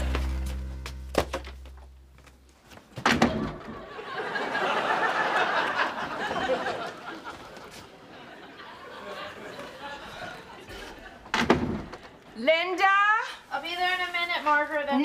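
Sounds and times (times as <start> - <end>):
audience laughter: 3.8 - 11.3.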